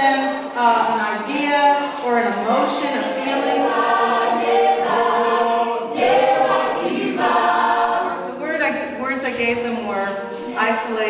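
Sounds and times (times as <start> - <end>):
choir singing in harmony: 2.1 - 8.5.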